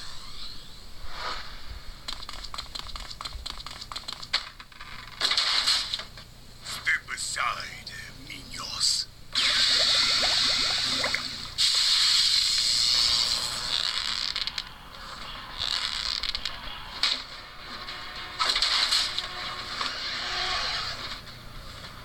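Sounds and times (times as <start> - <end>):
splashing sound effects: 9.4 - 11.4
hissing sound effects: 9.4 - 13.2
music from a tv: 12.6 - 21.2.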